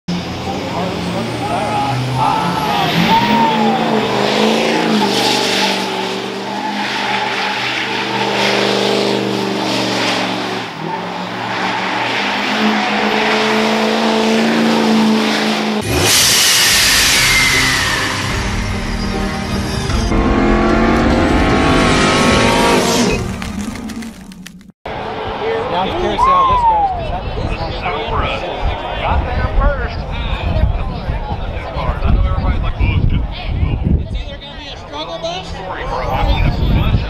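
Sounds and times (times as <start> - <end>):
truck engine revving: 0.1 - 25.3
tires spinning and squealing: 0.2 - 27.1
rushing sound effect with falling tone: 15.8 - 24.7.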